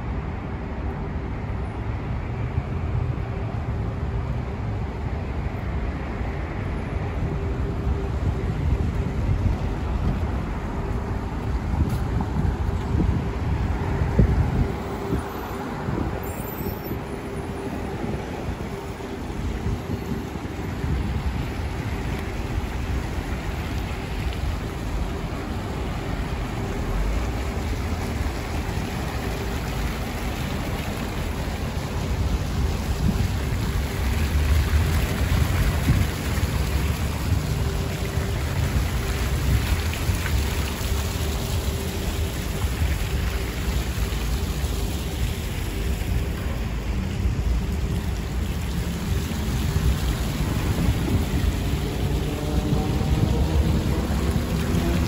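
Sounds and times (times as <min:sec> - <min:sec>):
fountain jets splashing into pool: 0:00.0 - 0:55.0
road traffic rumble: 0:00.0 - 0:55.0.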